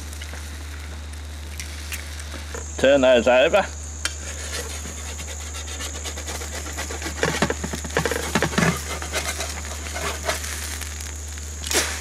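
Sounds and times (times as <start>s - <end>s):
eggs sizzling in fat: 0.0s - 12.0s
spatula scraping metal pan: 4.2s - 10.6s.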